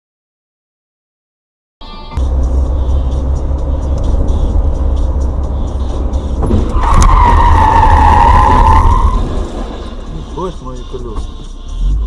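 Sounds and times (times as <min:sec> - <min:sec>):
car driving rumble: 0:02.2 - 0:12.0
car sliding screech: 0:05.6 - 0:12.0
car crash bang: 0:06.4 - 0:11.3.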